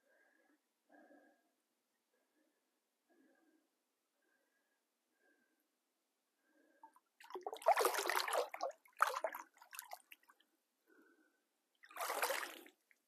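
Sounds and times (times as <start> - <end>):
fish splashing water: 7.2 - 10.2, 11.9 - 12.7.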